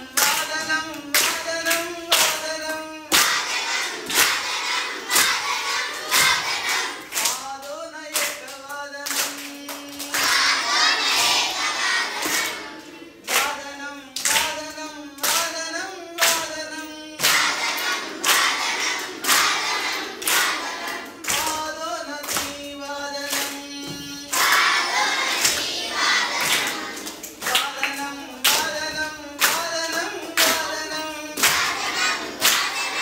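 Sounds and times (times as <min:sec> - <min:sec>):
children singing in unison: 0:00.0 - 0:07.4, 0:09.3 - 0:13.7, 0:16.2 - 0:33.0
children clapping: 0:00.0 - 0:33.0.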